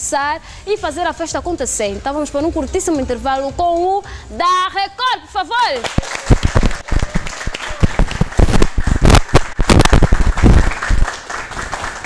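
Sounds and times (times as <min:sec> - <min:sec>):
hand clapping: 0:05.8 - 0:12.0.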